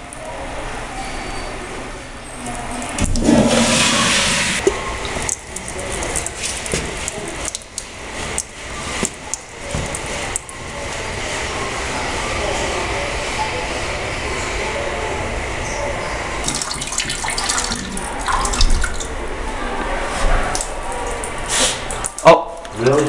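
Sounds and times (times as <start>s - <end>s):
water spattering on tiled floor: 2.8s - 11.0s, 16.4s - 19.2s
toilet flushing: 2.8s - 15.2s, 15.9s - 22.1s.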